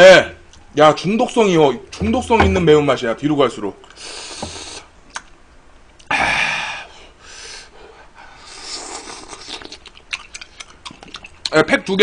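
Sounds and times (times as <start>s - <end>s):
man breathing hard through mouth: 4.0s - 4.9s, 6.2s - 9.0s.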